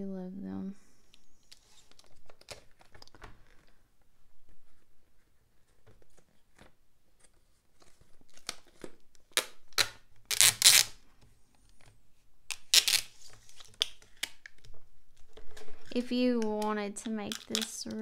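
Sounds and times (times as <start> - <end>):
packing tape pulled off roll: 8.2 - 11.0, 12.5 - 16.0.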